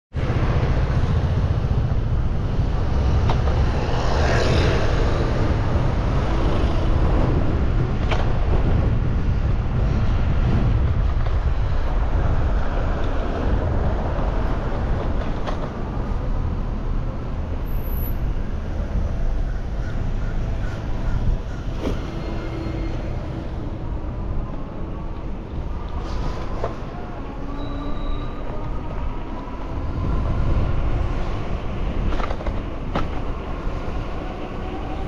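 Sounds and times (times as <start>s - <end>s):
street traffic: 0.1s - 35.0s
wind rumble on microphone: 0.1s - 35.0s.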